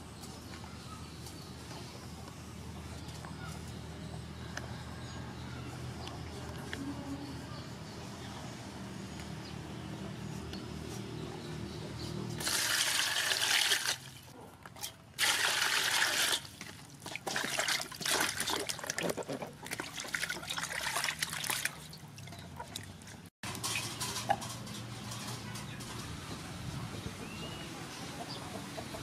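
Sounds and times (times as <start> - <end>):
water pouring into metal basin: 12.4 - 14.1, 15.2 - 19.0, 19.6 - 22.8.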